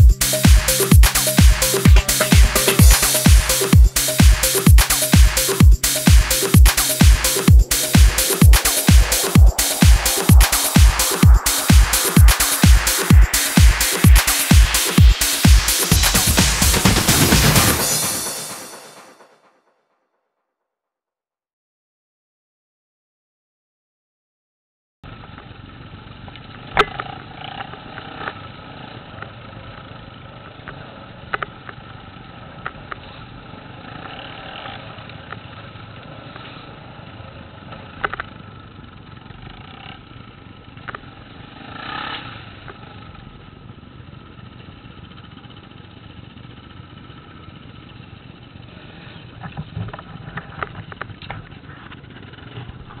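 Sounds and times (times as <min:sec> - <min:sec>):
off-road motorcycle running: 0:25.1 - 0:53.0.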